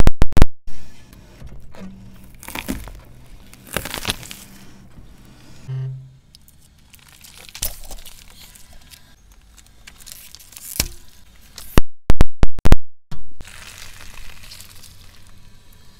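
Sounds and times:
tyre crushing foil pouches: 2.2 - 4.7, 6.5 - 11.8, 13.4 - 15.5
brief low hum: 4.2 - 6.4.

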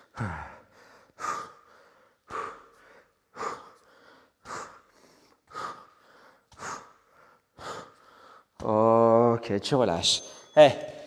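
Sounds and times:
man breathing out hard: 0.0 - 8.5.

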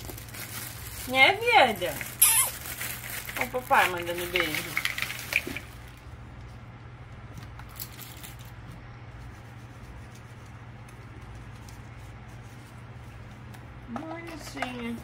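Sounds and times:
steady low hum: 0.0 - 15.0
plastic toy pieces clicking: 4.2 - 5.6.

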